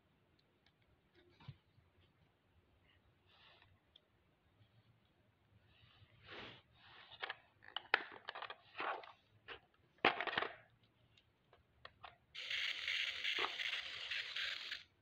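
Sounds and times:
toy car handling scrapes: 12.4 - 14.9.

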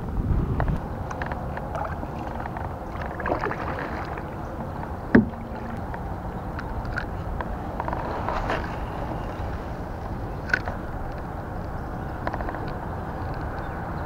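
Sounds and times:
knocks on plastic hull: 5.1 - 5.6.

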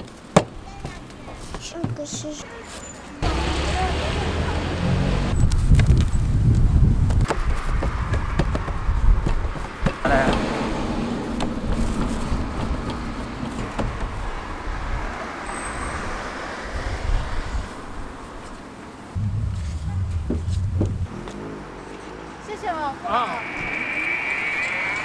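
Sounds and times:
street traffic rumble: 0.0 - 25.0
wavering pitched sound: 19.2 - 21.4.

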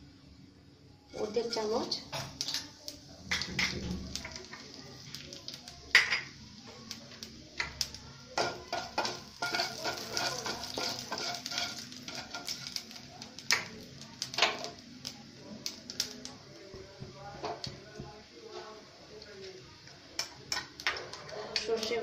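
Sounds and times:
seeds sizzling in hot oil: 1.1 - 22.0.

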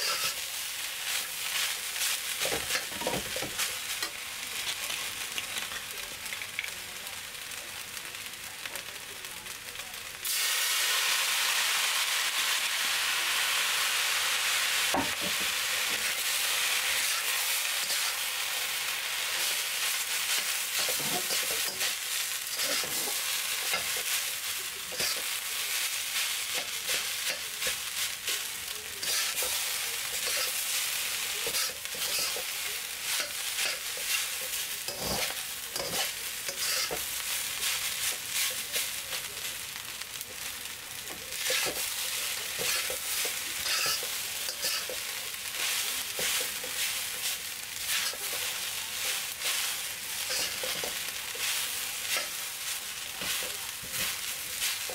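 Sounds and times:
metal spatula scraping a wok: 0.0 - 0.4, 20.3 - 24.2, 29.0 - 30.7, 31.5 - 32.5, 33.1 - 38.5, 42.5 - 52.4
rice sizzling in a wok: 0.0 - 54.9.

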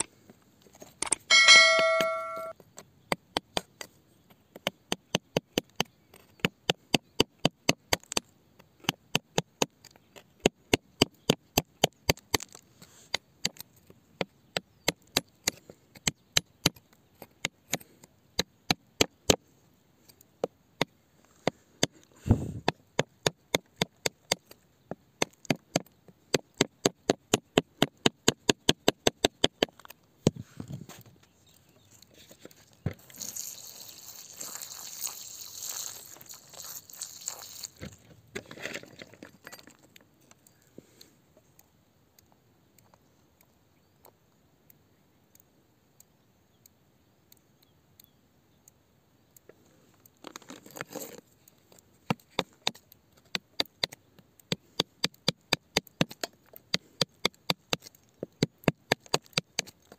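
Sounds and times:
metal tool chipping rock: 1.0 - 2.5, 21.8 - 24.6, 25.2 - 30.0, 52.1 - 59.9.

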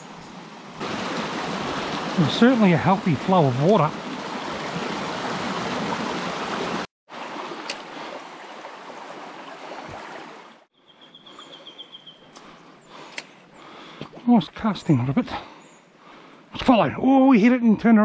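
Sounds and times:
stream rushing over rocks: 0.4 - 10.7.

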